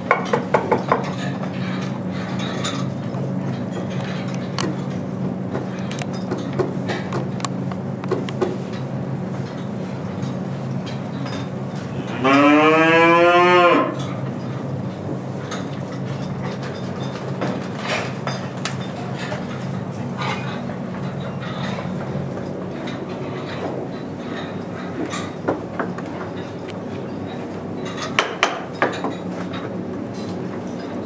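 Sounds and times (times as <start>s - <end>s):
cow mooing: 12.0s - 14.0s.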